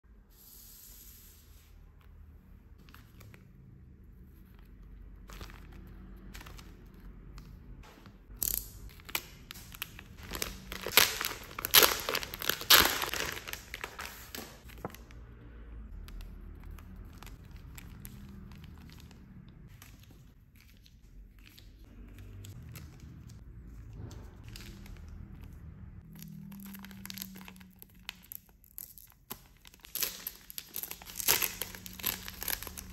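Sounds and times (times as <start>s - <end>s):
plastic bag crinkling: 9.0s - 15.1s, 26.2s - 32.9s.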